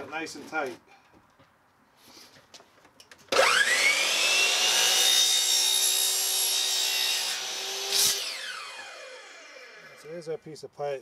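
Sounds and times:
saw cutting plastic pipe: 3.3s - 10.0s
miter saw whining: 3.3s - 10.1s.

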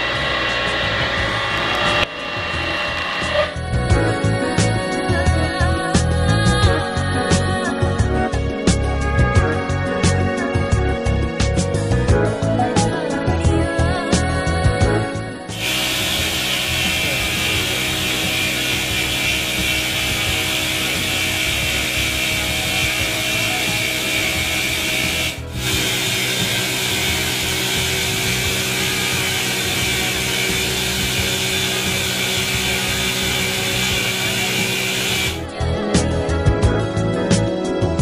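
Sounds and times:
high-pitched stone cutting: 0.0s - 3.7s, 15.5s - 35.4s
constant machine hum: 0.0s - 4.8s, 15.5s - 35.4s.

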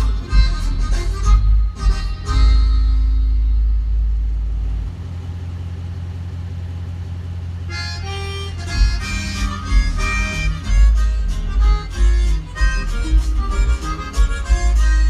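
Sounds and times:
melodic music: 0.0s - 3.8s, 7.8s - 15.0s
loud music with heavy bass: 0.0s - 4.6s, 8.4s - 15.0s
steady low noise: 0.0s - 15.0s.

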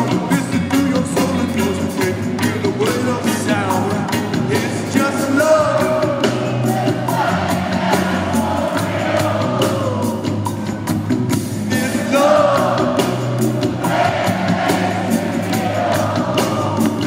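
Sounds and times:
person singing: 0.0s - 7.4s, 11.7s - 13.2s
live reggae band: 0.0s - 17.0s.

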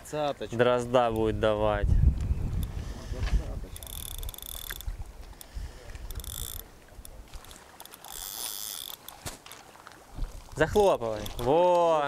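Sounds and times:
fishing reel buzzing: 3.7s - 9.2s.

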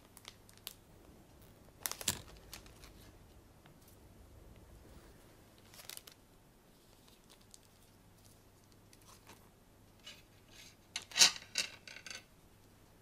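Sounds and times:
food packaging rustling: 1.4s - 3.2s, 5.6s - 6.2s.

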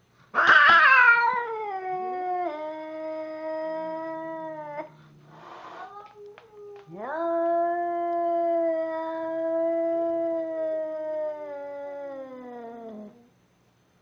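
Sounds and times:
cat yowling angrily: 0.4s - 4.9s, 6.8s - 12.7s.

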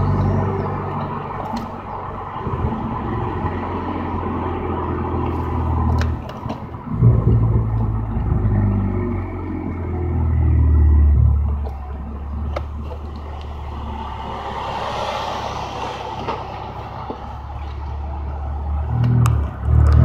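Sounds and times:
road noise: 0.0s - 20.0s.

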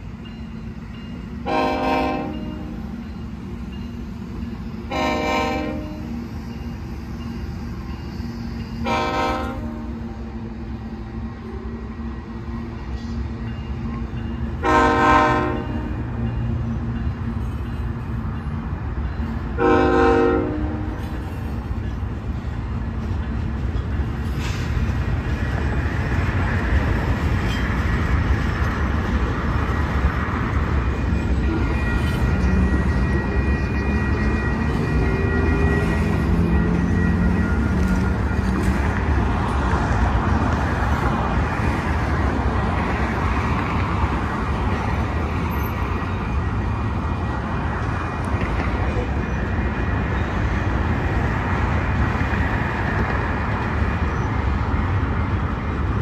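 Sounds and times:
freight train rumble: 0.0s - 56.0s
locomotive air horn blasts: 1.4s - 2.8s, 4.9s - 6.2s, 8.8s - 10.0s, 14.6s - 16.1s, 19.6s - 21.1s.

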